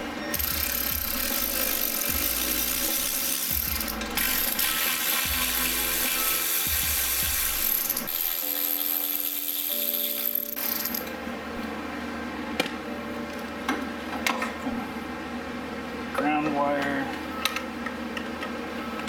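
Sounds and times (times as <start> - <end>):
electric ratchet whirring: 0.3 - 11.1.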